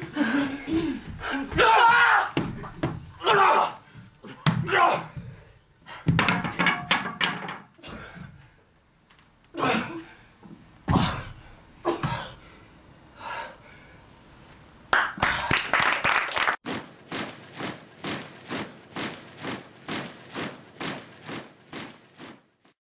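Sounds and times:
applause: 14.9s - 16.6s
rhythmic clapping: 14.9s - 22.3s.

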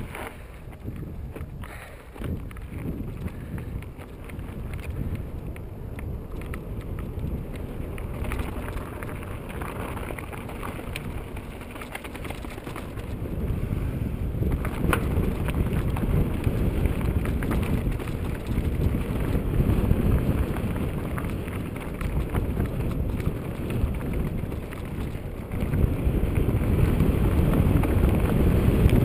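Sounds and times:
bike tyres rumbling on dirt: 0.0s - 29.0s
wind buffeting microphone: 0.0s - 29.0s
bike clacking on rocks: 14.4s - 29.0s.

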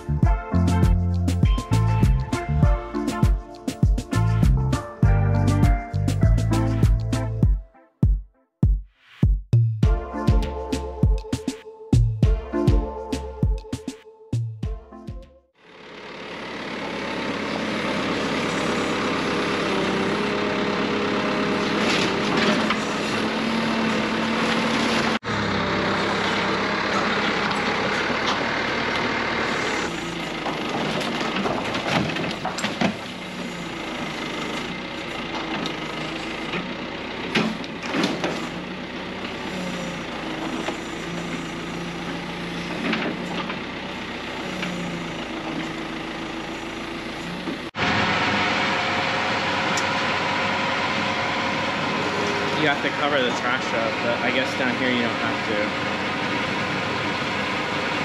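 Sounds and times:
backhoe diesel engine working: 0.0s - 7.6s, 15.6s - 58.0s
crashing wood and sheet-metal debris: 30.6s - 33.2s.

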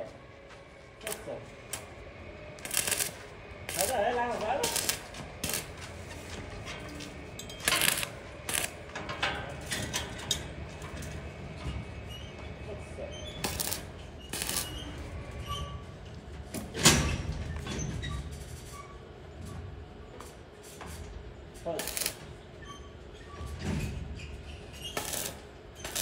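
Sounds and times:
welding arc crackling: 1.0s - 5.8s, 7.6s - 8.8s, 13.4s - 14.9s, 21.7s - 22.2s, 24.9s - 26.0s.

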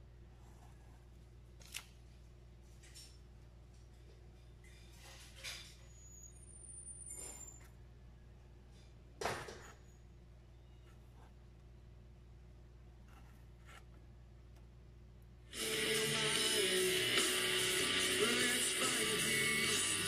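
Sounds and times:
faint low hum: 0.0s - 16.3s
music: 15.5s - 20.0s.

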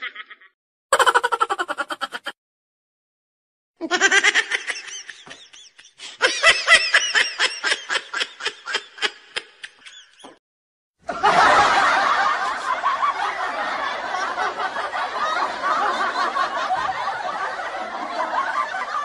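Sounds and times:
laughing sound effects: 0.0s - 2.4s, 3.8s - 10.4s.

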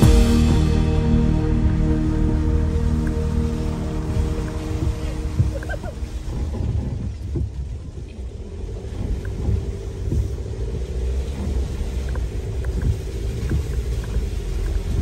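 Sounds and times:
rain: 0.0s - 15.0s
vehicle driving on wet gravel: 0.0s - 15.0s.

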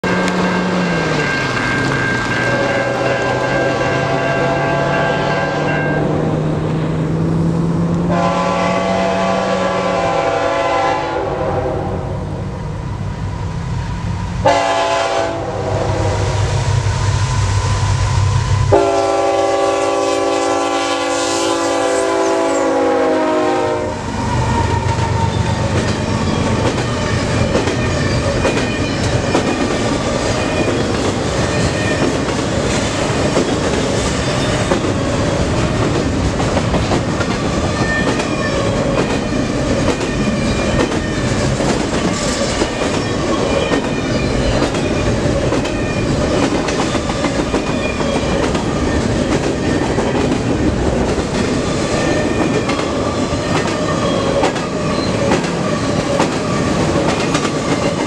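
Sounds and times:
locomotive air horn blasts: 2.5s - 6.0s, 8.1s - 12.2s, 14.4s - 16.4s, 18.7s - 24.1s
train wheels clicking on rails: 24.0s - 58.0s.

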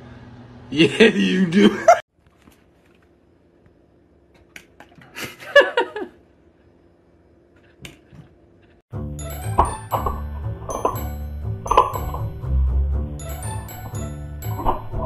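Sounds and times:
music with high chiming notes: 9.0s - 15.0s.

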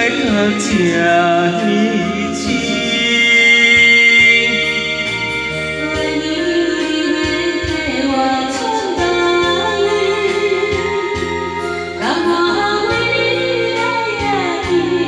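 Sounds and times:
steady beat: 0.0s - 9.4s
sustained keyboard chords: 0.0s - 15.0s
wavering melody line: 0.0s - 15.0s.

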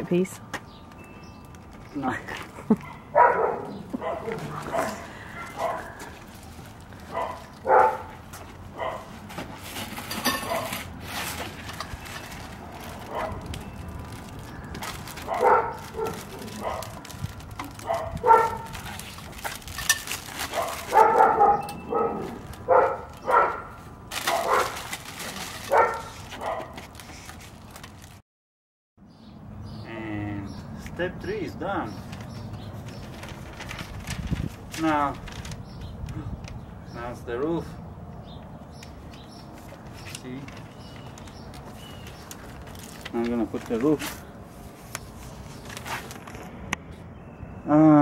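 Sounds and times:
dog barking: 2.9s - 6.0s, 7.1s - 8.1s, 8.8s - 9.1s, 13.1s - 13.4s, 15.2s - 17.0s, 17.8s - 18.7s, 20.5s - 24.8s, 25.7s - 26.8s.

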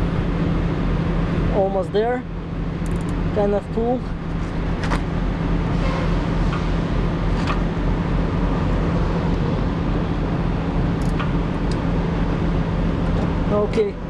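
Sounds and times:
low mechanical drone: 0.0s - 14.0s
light metallic clicks: 2.8s - 3.2s.

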